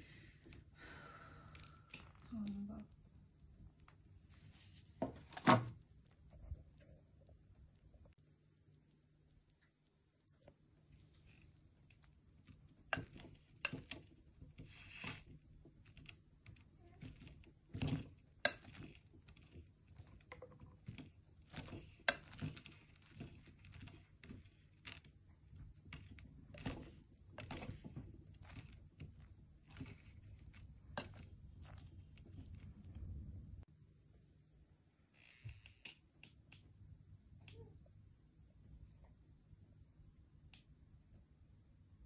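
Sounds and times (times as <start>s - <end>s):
spoon scraping pot and rice: 17.0s - 25.0s, 25.6s - 32.6s.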